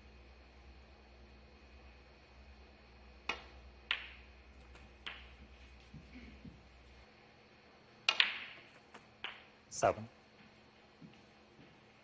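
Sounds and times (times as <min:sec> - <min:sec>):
snooker balls clicking: 0:03.2 - 0:06.7, 0:08.0 - 0:09.6.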